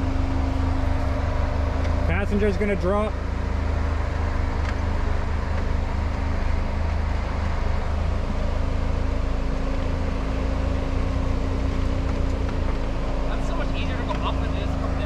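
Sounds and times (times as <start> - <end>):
engine rumbling at low speed: 0.0 - 15.0.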